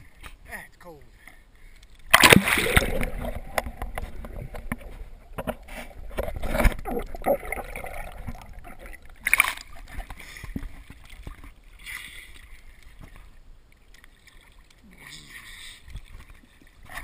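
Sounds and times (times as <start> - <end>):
water sloshing and bubbling: 0.0 - 17.0
water splash: 2.1 - 12.2.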